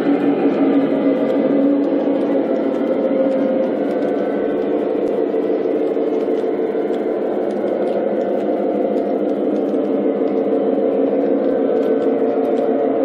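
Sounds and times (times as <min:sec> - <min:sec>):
model train running hum: 0:00.0 - 0:13.0
wheels ticking on rails: 0:00.0 - 0:13.0.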